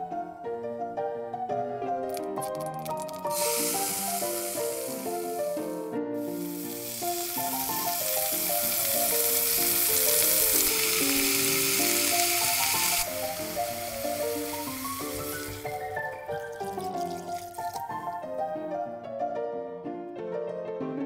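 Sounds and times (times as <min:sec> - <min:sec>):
light instrumental music: 0:00.0 - 0:21.0
meat sizzling in hot oil: 0:02.2 - 0:18.2.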